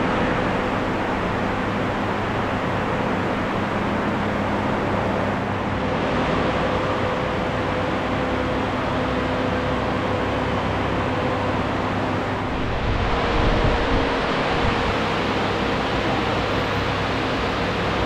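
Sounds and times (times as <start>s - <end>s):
rushing air noise: 11.4s - 18.0s.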